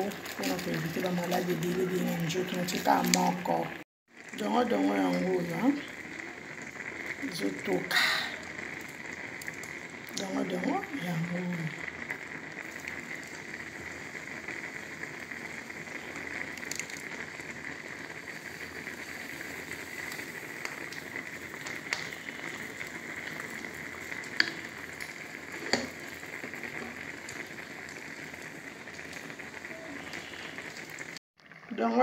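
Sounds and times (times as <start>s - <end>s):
soup simmering and bubbling: 0.0s - 32.0s.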